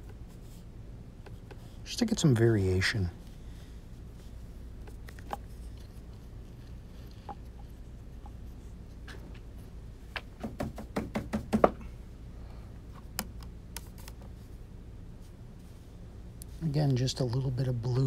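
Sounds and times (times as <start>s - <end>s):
low steady hum: 0.0s - 18.0s
painting tools knocking and clicking: 10.2s - 11.8s.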